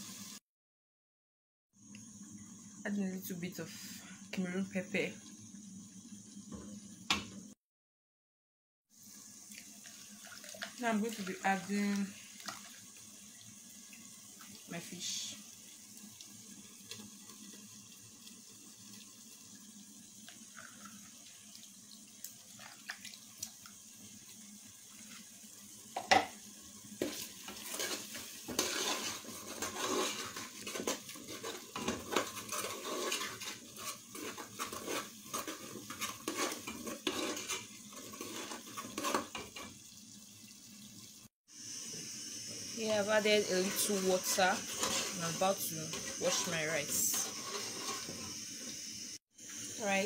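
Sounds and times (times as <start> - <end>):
metal spoon scraping a metal pot: 27.0 - 39.7, 43.4 - 48.4.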